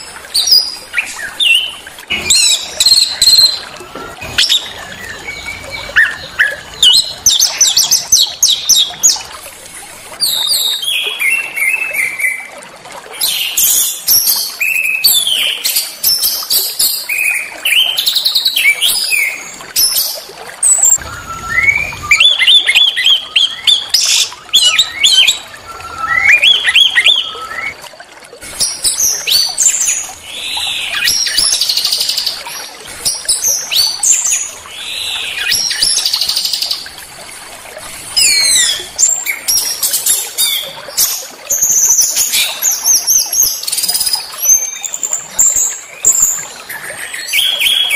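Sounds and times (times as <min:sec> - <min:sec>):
songbirds singing: 0:00.0 - 0:09.4, 0:13.2 - 0:27.8, 0:38.2 - 0:47.9.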